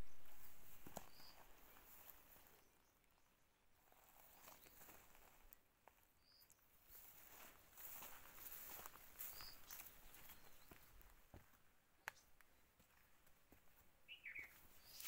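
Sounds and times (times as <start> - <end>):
dull noise: 0.0 - 1.2
footsteps on dirt path: 0.0 - 2.7, 3.8 - 15.0.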